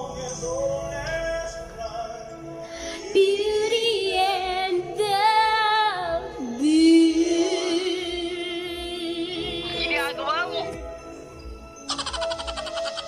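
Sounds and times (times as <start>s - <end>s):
woman singing into microphone: 3.0s - 10.7s.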